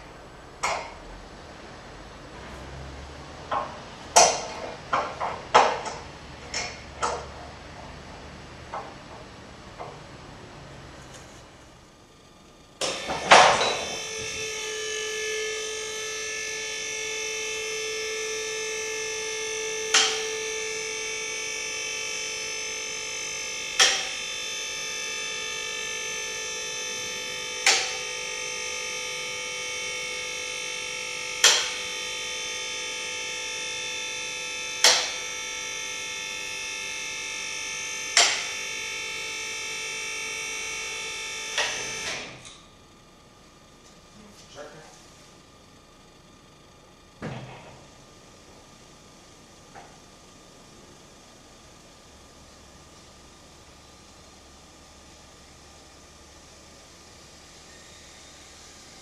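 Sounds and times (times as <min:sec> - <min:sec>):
hydraulic pump running: 0:12.8 - 0:42.7.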